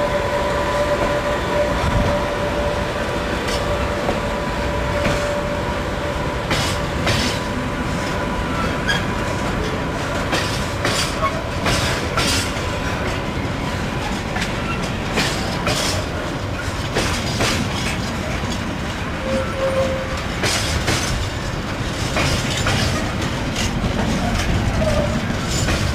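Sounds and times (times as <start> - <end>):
train rumble: 0.0 - 25.9
wheel clicks over rail joints: 20.1 - 25.9.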